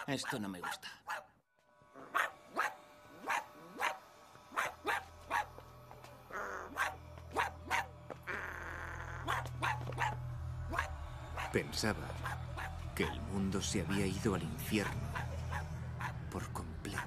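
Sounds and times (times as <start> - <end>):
small dog barking: 0.0 - 1.3, 2.1 - 5.6, 6.7 - 7.9, 9.2 - 11.6.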